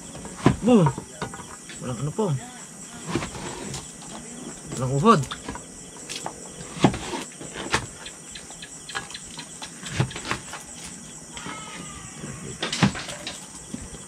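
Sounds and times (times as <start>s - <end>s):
crickets chirring: 0.0s - 14.0s.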